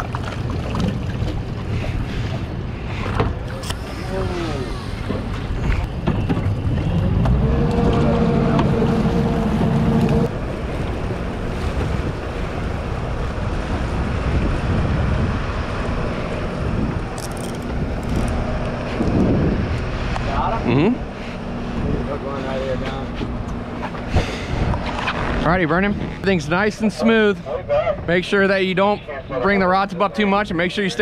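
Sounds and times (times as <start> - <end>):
water rushing past hull: 0.0 - 20.1
wind buffeting microphone: 0.0 - 20.4, 21.1 - 26.9
outboard motors droning: 0.0 - 31.0.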